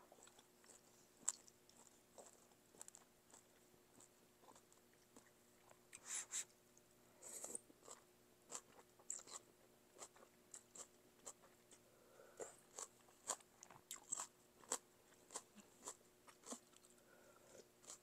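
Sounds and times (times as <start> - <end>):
wet chewing and mouth clicks: 0.1 - 6.1.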